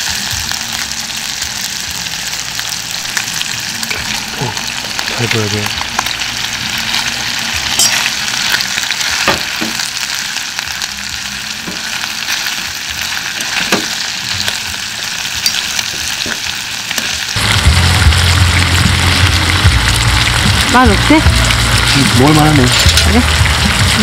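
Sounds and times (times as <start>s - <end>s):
meat sizzling on a grill: 0.0s - 24.0s
loud low hum: 17.4s - 24.0s.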